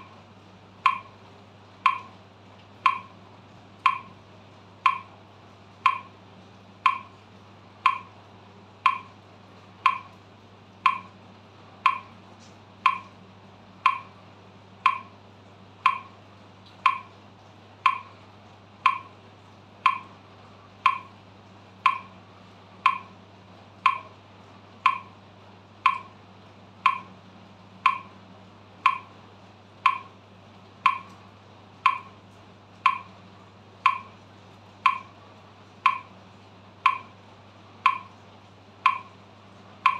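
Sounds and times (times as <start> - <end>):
metronome ticking: 0.8 - 1.2, 1.8 - 2.2, 2.8 - 3.2, 3.8 - 4.2, 4.8 - 5.2, 5.8 - 6.2, 6.8 - 7.2, 7.8 - 8.2, 8.8 - 9.2, 9.8 - 10.2, 10.8 - 11.2, 11.8 - 12.2, 12.8 - 13.2, 13.8 - 14.2, 14.8 - 15.2, 15.8 - 16.2, 16.8 - 17.2, 17.8 - 18.2, 18.8 - 19.2, 19.8 - 20.2, 20.8 - 21.2, 21.8 - 22.2, 22.8 - 23.2, 23.8 - 24.2, 24.8 - 25.2, 25.8 - 26.2, 26.8 - 27.2, 27.8 - 28.2, 28.8 - 29.2, 29.8 - 30.2, 30.8 - 31.2, 31.8 - 32.2, 32.8 - 33.2, 33.8 - 34.2, 34.8 - 35.2, 35.8 - 36.2, 36.8 - 37.2, 37.8 - 38.2, 38.8 - 39.2.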